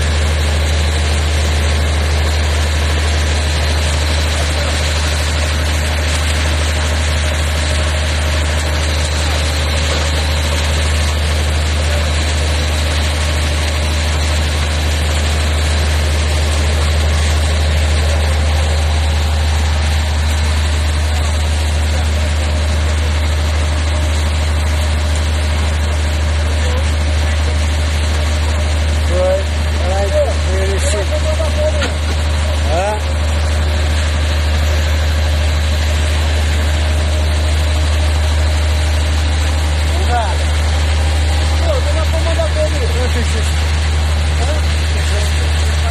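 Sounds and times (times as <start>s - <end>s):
boat engine droning: 0.0s - 45.9s
water rushing along hull: 0.0s - 45.9s.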